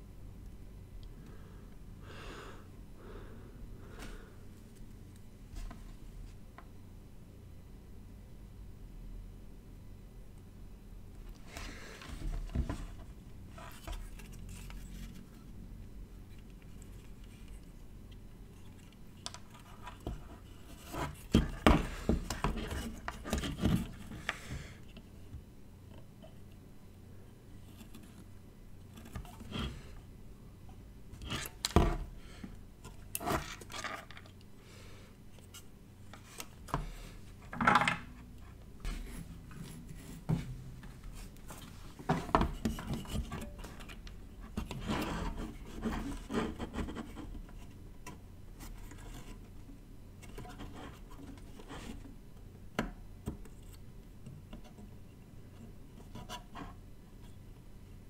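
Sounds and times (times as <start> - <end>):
scrapes and small knocks: 11.4 - 15.5, 16.3 - 26.5, 27.6 - 30.0, 35.3 - 57.5
handling objects on wooden workbench: 36.1 - 38.2, 38.8 - 46.7.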